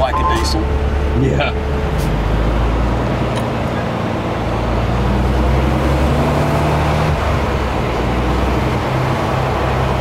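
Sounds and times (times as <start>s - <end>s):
truck engine running: 0.0s - 5.0s.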